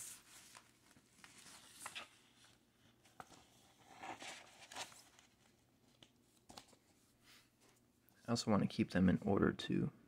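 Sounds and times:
paper sleeve rustling slide: 0:00.0 - 0:05.3.

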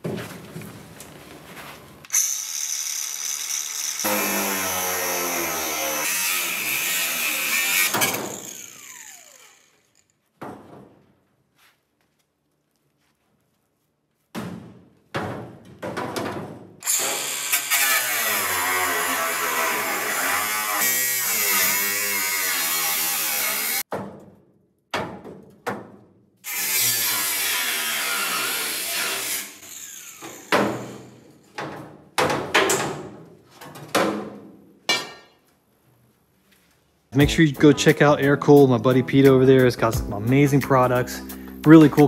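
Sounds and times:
angle grinder cutting sheet steel: 0:02.1 - 0:10.1, 0:16.8 - 0:23.8, 0:26.4 - 0:31.3.

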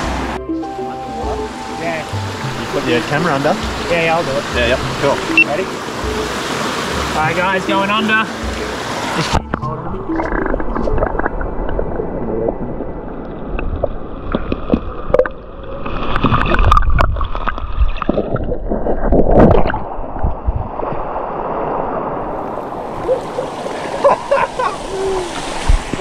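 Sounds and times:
creek flowing hiss: 0:00.0 - 0:09.6, 0:21.2 - 0:26.0
underwater creek gurgling: 0:00.0 - 0:26.0
water rushes: 0:00.0 - 0:26.0.

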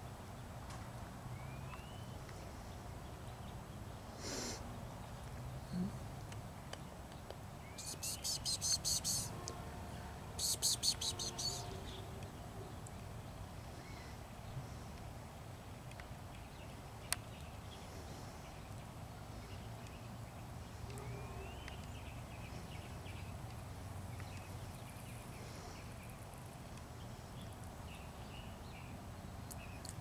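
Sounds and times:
faint high chirps: 0:07.7 - 0:09.4, 0:10.4 - 0:12.2.

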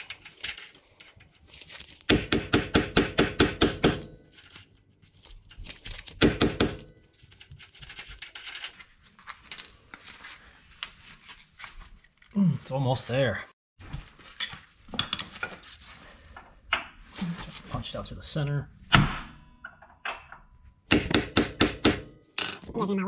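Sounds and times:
rapid sharp metal impacts: 0:02.1 - 0:04.3, 0:06.2 - 0:07.0, 0:20.9 - 0:22.4.

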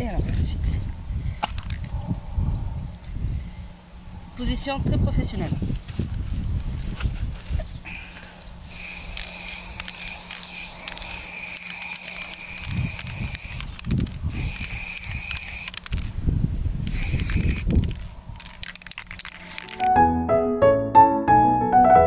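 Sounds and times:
spray paint can hissing: 0:08.6 - 0:16.2, 0:16.8 - 0:19.9.

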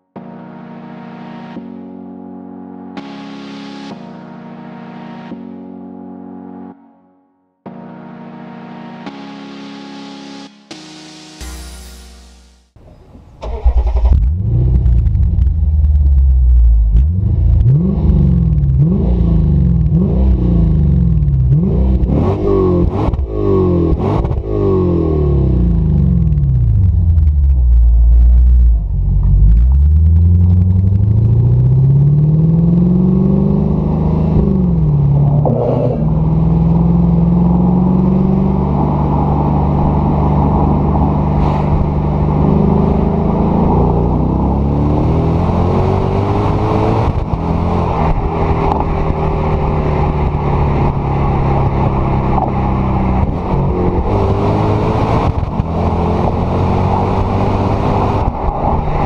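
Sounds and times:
car exhaust while driving: 0:14.0 - 0:59.0.

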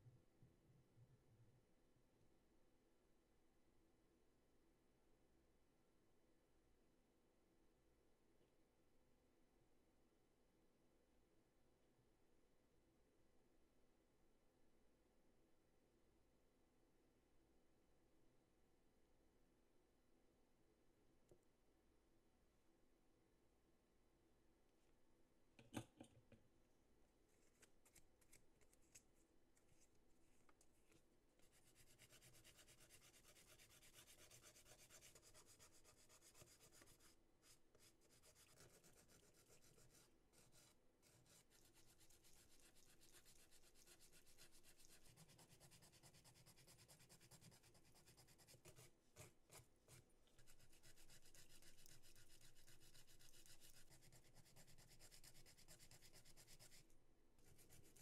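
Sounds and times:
nail file rasping on nails: 0:50.4 - 0:56.8.

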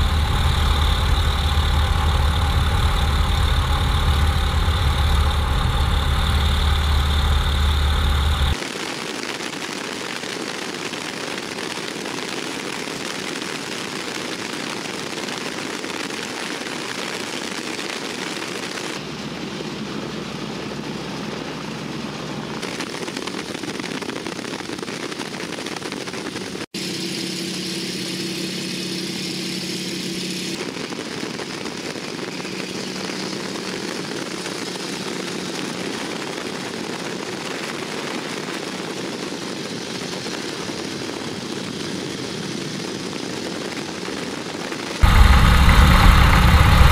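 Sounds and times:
propeller plane engine drone: 0:00.0 - 0:08.6, 0:18.6 - 0:46.9.

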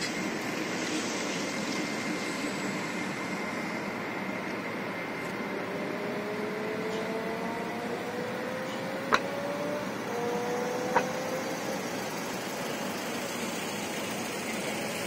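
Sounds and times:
vehicle engines pulling away: 0:05.6 - 0:15.0.

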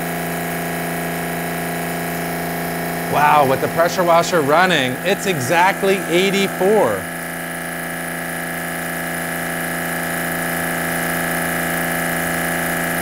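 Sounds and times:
pressure washer humming: 0:01.9 - 0:07.8.

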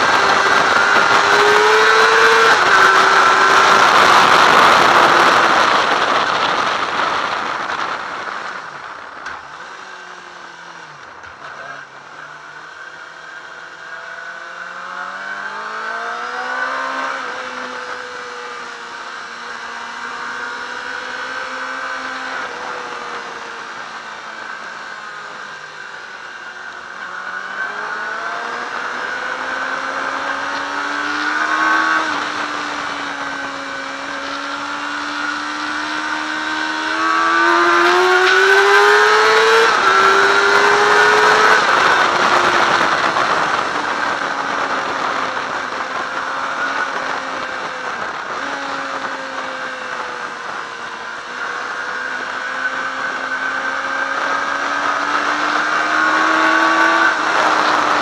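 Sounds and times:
wind rush: 0:00.0 - 0:09.8, 0:27.7 - 0:58.0
sport bike engine revving: 0:00.0 - 0:58.0.

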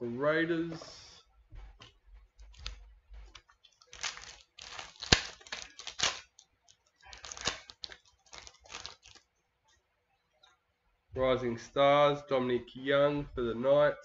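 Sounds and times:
wrappers tearing and crinkling: 0:03.7 - 0:09.3.

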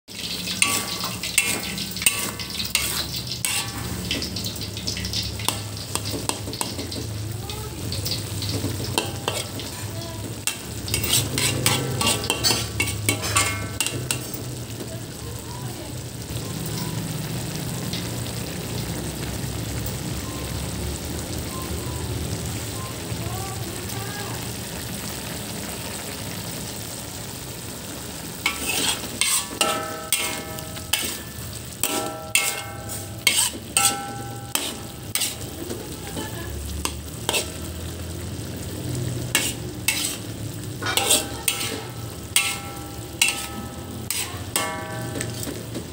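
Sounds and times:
food sizzling: 0:00.0 - 0:45.9
metal spatula scraping wok: 0:00.1 - 0:07.2, 0:07.9 - 0:14.7, 0:28.3 - 0:45.9.

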